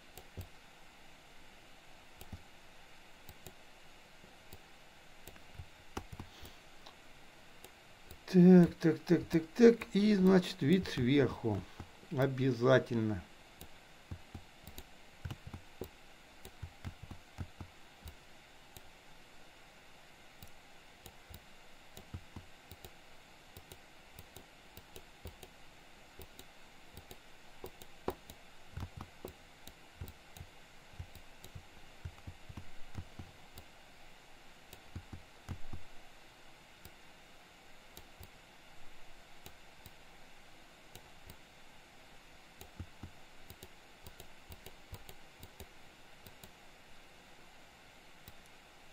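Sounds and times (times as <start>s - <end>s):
steady hiss: 0.0s - 48.9s
mouse and keyboard clicking: 2.2s - 2.4s, 5.2s - 6.6s, 13.6s - 18.9s, 20.4s - 23.0s, 23.6s - 25.5s, 26.2s - 33.7s, 34.7s - 35.9s, 42.6s - 46.6s.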